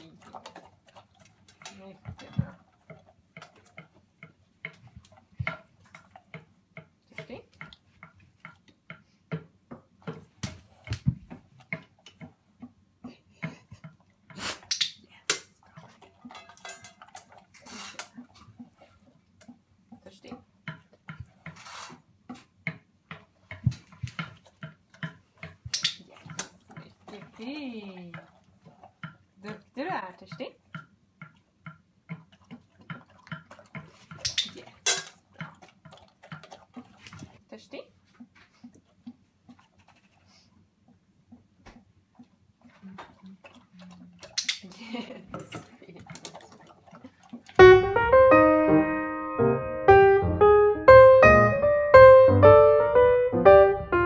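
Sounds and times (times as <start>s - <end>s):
dog lapping water from metal bowl: 0.0s - 9.2s, 9.8s - 12.8s, 13.4s - 40.3s, 40.9s - 47.8s.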